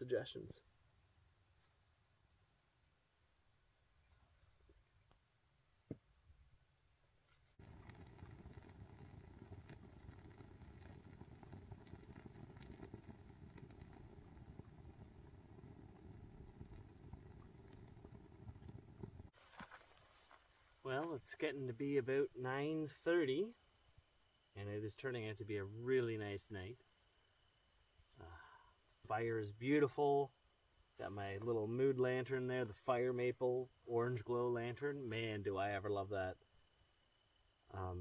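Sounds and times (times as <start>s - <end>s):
insects trilling: 0.0s - 32.1s
wood fire crackling: 7.4s - 20.3s.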